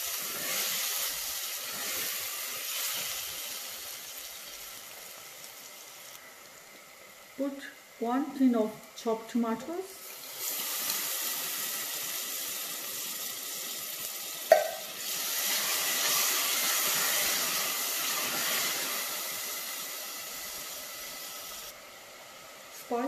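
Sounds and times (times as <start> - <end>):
tomatoes sizzling in pot: 0.0 - 23.0
knock on pot: 14.5 - 14.8.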